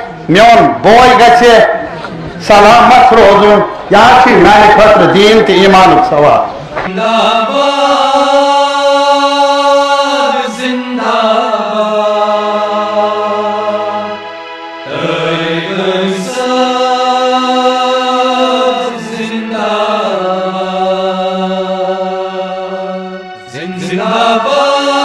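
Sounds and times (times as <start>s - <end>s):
music: 0.0s - 25.0s
person singing chant-like song: 6.8s - 25.0s.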